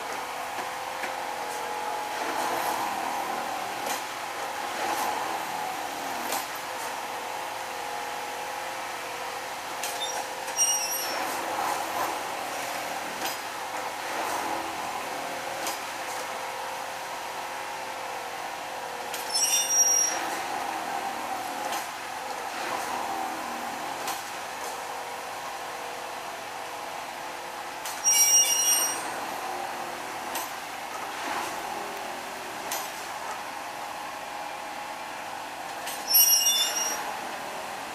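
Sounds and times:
high squeals: 0:10.0 - 0:11.3, 0:19.2 - 0:20.3, 0:28.0 - 0:29.2, 0:36.0 - 0:37.2.

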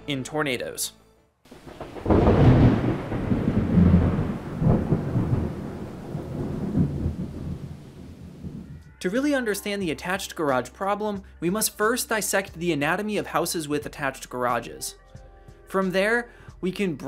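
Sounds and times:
rolling thunder: 0:01.5 - 0:08.8.

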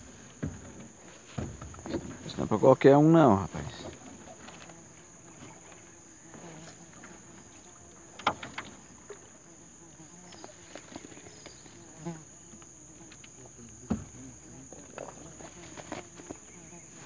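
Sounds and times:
insects droning: 0:00.0 - 0:17.0
net knocking against metal boat: 0:00.4 - 0:02.4.

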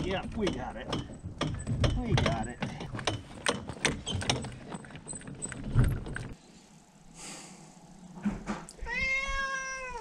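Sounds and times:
cat meowing: 0:08.8 - 0:10.0.

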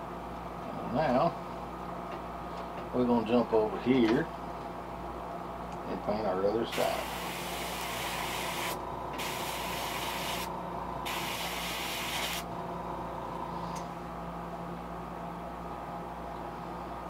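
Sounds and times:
steady hum: 0:00.0 - 0:17.0
airbrush spraying: 0:06.8 - 0:10.5, 0:11.1 - 0:12.4.

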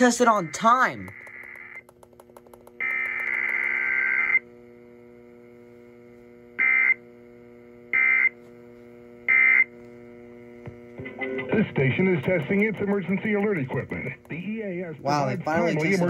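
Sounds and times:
buzzy digital data bursts: 0:00.0 - 0:01.9, 0:02.7 - 0:04.6, 0:06.6 - 0:08.4, 0:09.3 - 0:09.8, 0:11.0 - 0:16.0
steady low hum: 0:00.0 - 0:16.0.

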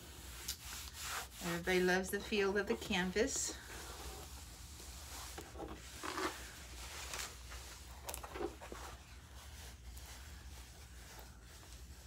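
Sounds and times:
plastic and canvas rustling: 0:02.5 - 0:12.0.

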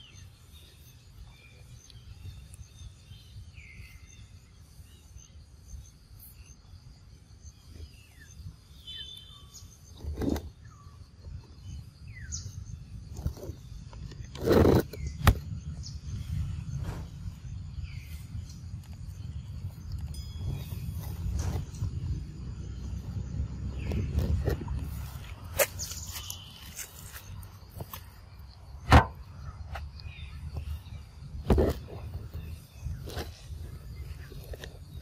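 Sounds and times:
small birds chirping: 0:00.0 - 0:35.0
steady low rumble: 0:11.6 - 0:35.0
loud thumps: 0:28.8 - 0:29.3.

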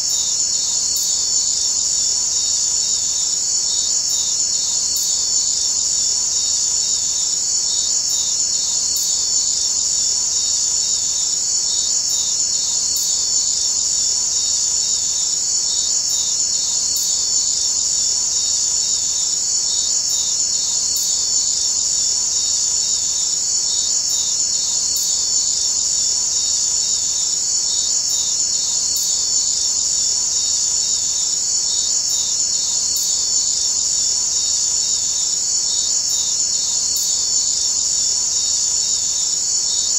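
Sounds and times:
high-pitched insect trilling: 0:00.0 - 0:39.9.

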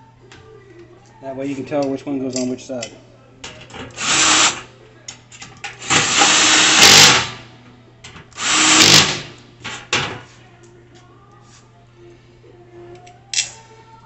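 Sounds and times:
power drill driving screws: 0:04.0 - 0:04.6, 0:05.8 - 0:07.4, 0:08.4 - 0:09.3.

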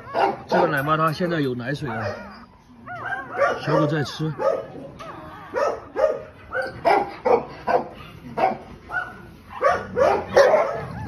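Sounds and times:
puppies crying in high squeals: 0:01.8 - 0:06.8, 0:10.8 - 0:11.0.

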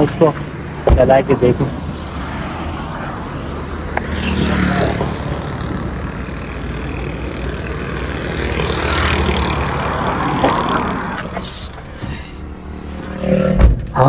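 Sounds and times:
car engine running: 0:03.6 - 0:14.0.

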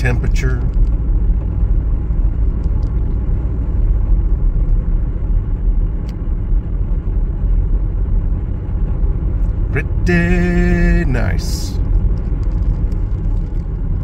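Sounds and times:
car engine and tyre rumble: 0:00.0 - 0:14.0.

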